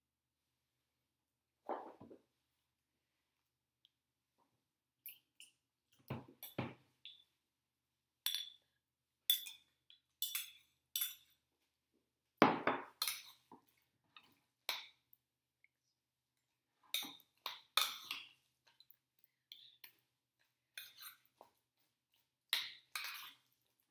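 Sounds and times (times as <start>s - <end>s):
metal spoon clinking on ceramic bowl: 8.2s - 8.7s, 9.3s - 11.3s.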